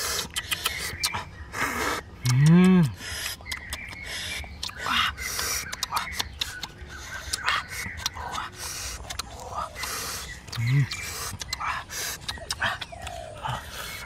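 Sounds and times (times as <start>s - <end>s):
person humming mmm: 1.6s - 3.0s, 10.5s - 11.0s.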